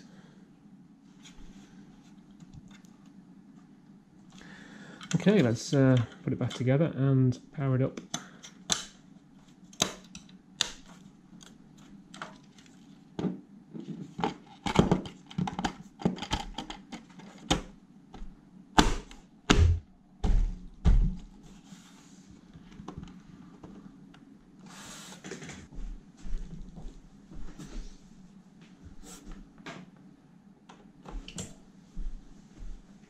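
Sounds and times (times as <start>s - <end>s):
plastic and metal parts clicking: 14.2s - 17.6s
heavy thumps: 18.8s - 21.3s.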